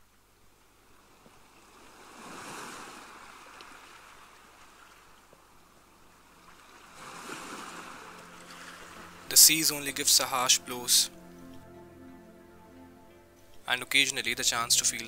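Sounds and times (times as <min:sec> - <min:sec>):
sea waves washing in: 0:01.5 - 0:05.2, 0:06.2 - 0:11.1.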